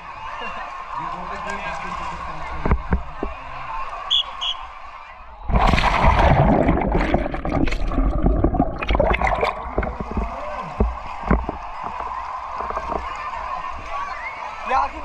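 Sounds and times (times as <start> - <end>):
water splash: 5.4 - 13.1
underwater churning and bubbling: 5.4 - 13.2.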